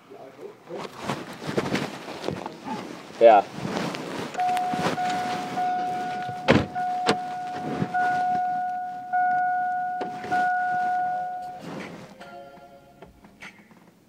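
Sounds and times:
car warning chime: 4.4s - 13.3s
thud: 6.3s - 8.0s.

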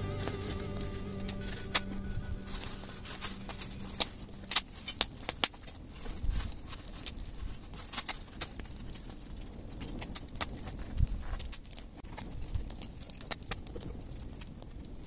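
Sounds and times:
burn pile crackling: 0.0s - 15.0s
sharp pops of fire: 3.5s - 15.0s.

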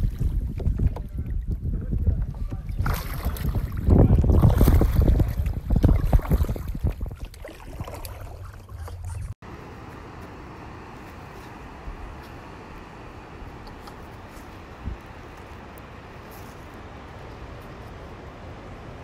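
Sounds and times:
wind buffeting microphone: 0.0s - 9.4s, 11.7s - 19.0s
ocean surf on beach: 9.4s - 19.0s.

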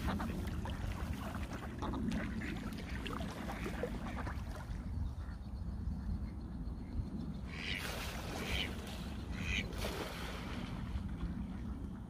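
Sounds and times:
ducks quacking: 7.5s - 9.7s.

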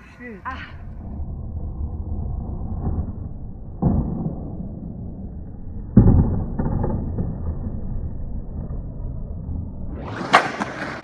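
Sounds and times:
skateboard wheels rolling on asphalt: 1.0s - 11.0s
skateboard clacking on curb: 10.1s - 11.0s.

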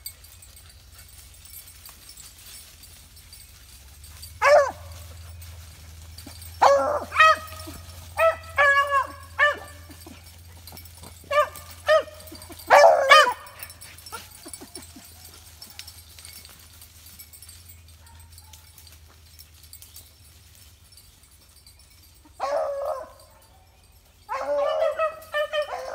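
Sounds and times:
hounds barking: 3.4s - 16.7s, 17.5s - 19.5s, 22.1s - 25.9s.

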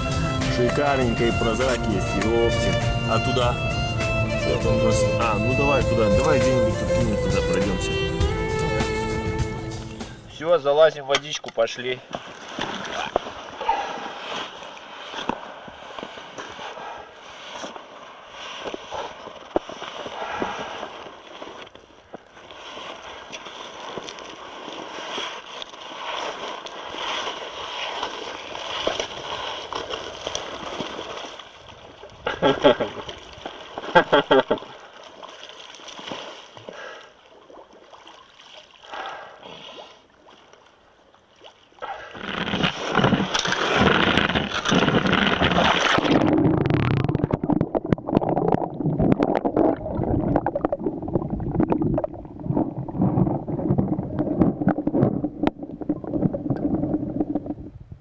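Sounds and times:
sharp splashes: 11.2s - 21.6s, 22.4s - 40.7s, 41.3s - 56.5s
underwater gurgling and rushing: 41.8s - 58.0s
scraping over ice: 42.1s - 46.3s.

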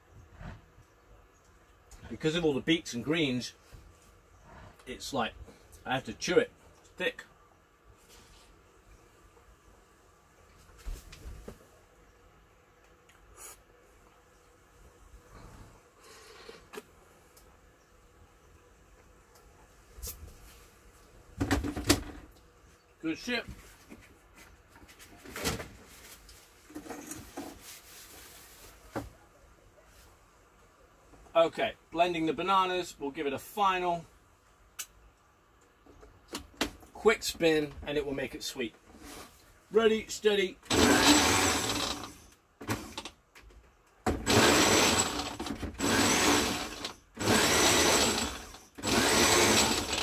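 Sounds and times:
blender churning thick smoothie: 40.7s - 42.1s, 44.1s - 50.0s.

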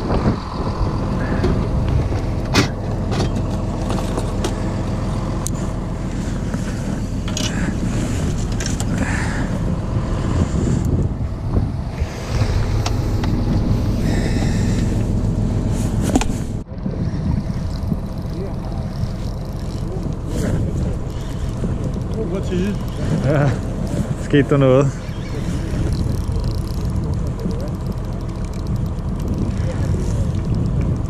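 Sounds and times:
boat engine droning: 0.0s - 31.0s.

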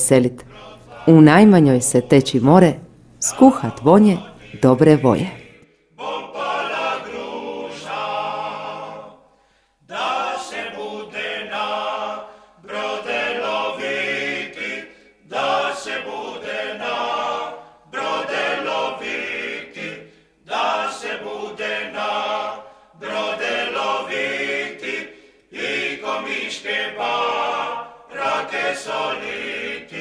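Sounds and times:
choir singing a cappella: 0.1s - 2.1s, 3.2s - 30.0s.

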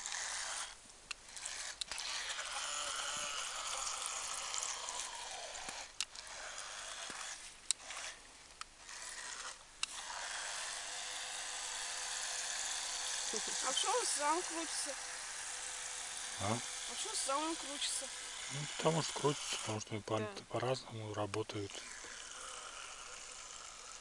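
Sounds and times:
electric motor whining: 0.0s - 20.5s, 21.5s - 24.0s.

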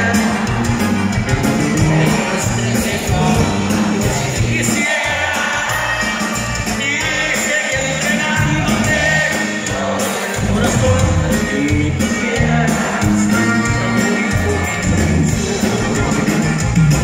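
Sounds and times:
stepping bass line: 0.0s - 9.8s
button accordion: 0.0s - 17.0s.

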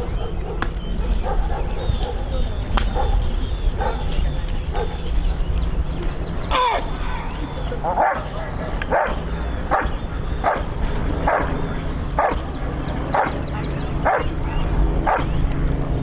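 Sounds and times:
dog barking: 0.2s - 3.2s, 3.8s - 4.1s, 4.7s - 5.0s, 7.9s - 10.7s, 11.3s - 11.6s, 12.2s - 12.4s, 13.1s - 13.4s, 14.0s - 15.3s.

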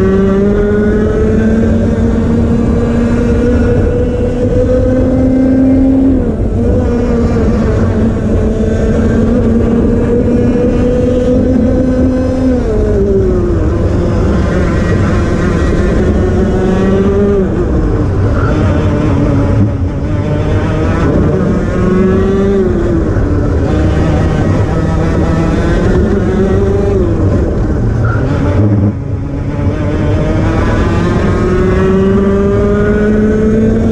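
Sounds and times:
racing kart engine: 0.0s - 33.9s.

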